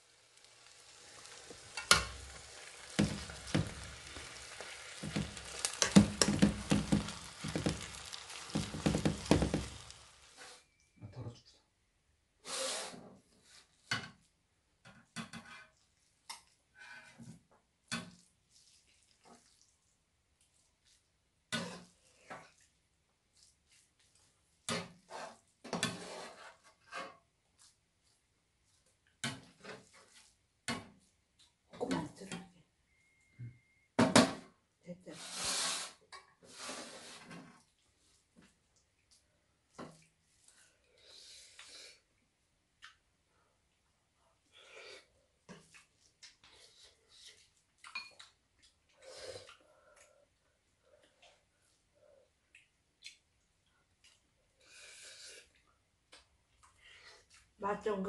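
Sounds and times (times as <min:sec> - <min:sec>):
fried rice sizzling in pan: 0:00.0 - 0:10.6.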